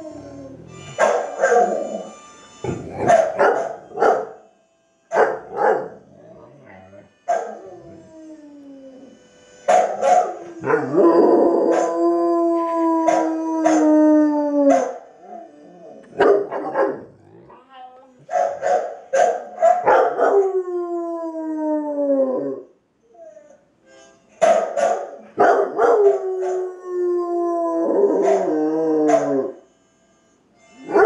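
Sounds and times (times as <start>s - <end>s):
dog barking and yelping: 0.0s - 2.1s, 2.7s - 4.3s, 5.1s - 8.0s, 9.7s - 11.9s, 14.7s - 15.1s, 16.0s - 17.6s, 18.2s - 20.5s, 24.4s - 26.6s, 28.1s - 29.6s
dog howling: 0.0s - 3.6s, 5.5s - 9.2s, 10.0s - 17.5s, 19.8s - 23.6s, 25.6s - 29.6s.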